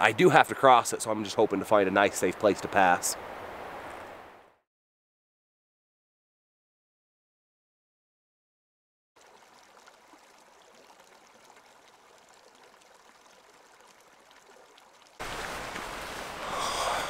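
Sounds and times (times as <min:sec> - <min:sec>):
creek running over rocks: 0:09.2 - 0:17.0.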